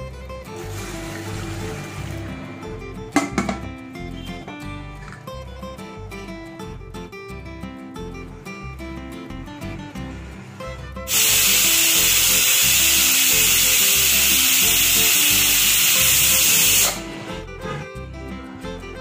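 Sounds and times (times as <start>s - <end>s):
pressure cooker steam hissing: 11.1s - 17.0s.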